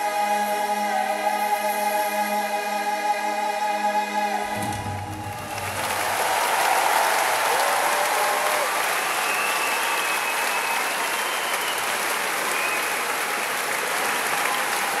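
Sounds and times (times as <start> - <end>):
audience applauding: 4.5 - 15.0
long whistle: 8.2 - 13.4.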